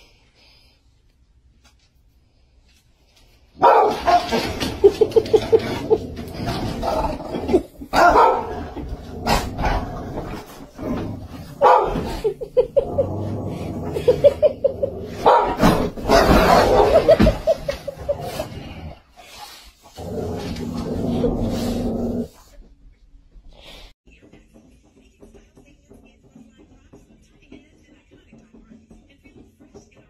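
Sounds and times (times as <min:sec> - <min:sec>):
dogs barking: 0:03.6 - 0:06.0, 0:07.5 - 0:09.5, 0:11.5 - 0:12.8, 0:14.0 - 0:18.0
dogs yapping: 0:03.6 - 0:06.0, 0:07.5 - 0:09.5, 0:11.6 - 0:12.8, 0:14.2 - 0:18.4.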